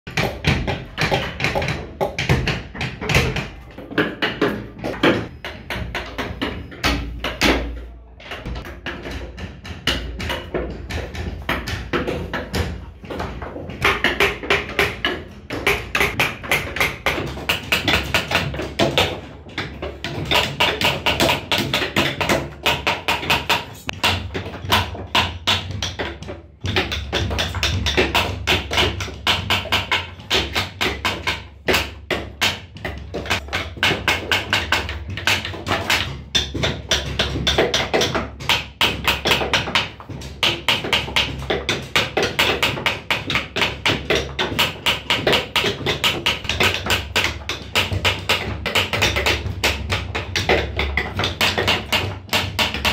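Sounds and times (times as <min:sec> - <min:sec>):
background music with percussive beat: 0:00.1 - 0:07.8, 0:08.4 - 0:52.9.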